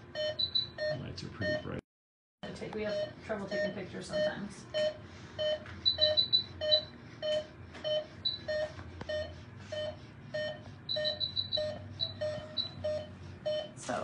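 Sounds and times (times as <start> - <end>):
patient monitor beeping: 0.0 - 1.8, 2.4 - 14.0
high monitor chirps: 0.2 - 1.8, 2.9 - 13.8.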